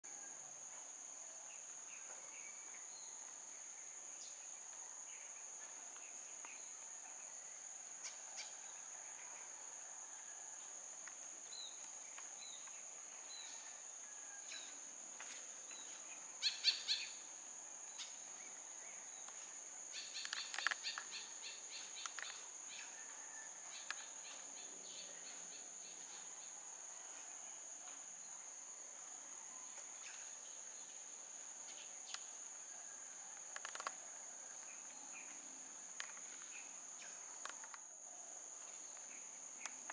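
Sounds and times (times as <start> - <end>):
bird chirps: 16.4 - 17.2.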